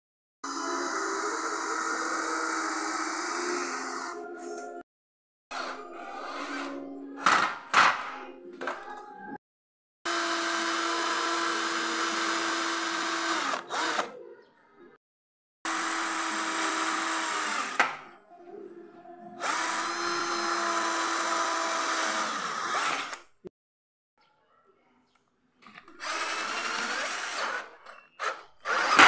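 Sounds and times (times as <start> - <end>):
cordless drill boring into metal: 0.6 - 3.7, 10.1 - 14.1, 15.7 - 17.9, 19.4 - 23.2, 25.8 - 29.0.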